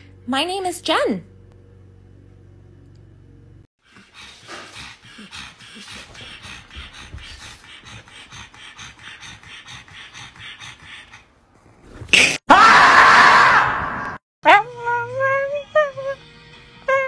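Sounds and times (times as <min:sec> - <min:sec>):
dog panting rapidly: 0:03.8 - 0:11.5.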